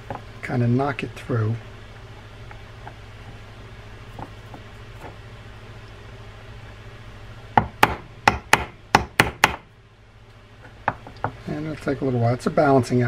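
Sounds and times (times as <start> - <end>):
hammer knocking on metal pick: 7.6 - 9.6.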